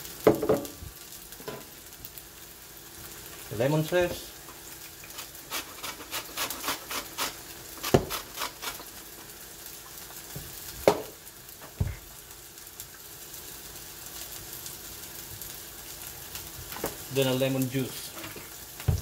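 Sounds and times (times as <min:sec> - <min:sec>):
chicken sizzling in frying pan: 0:00.0 - 0:19.0
lemon rasping on zester: 0:05.1 - 0:08.9.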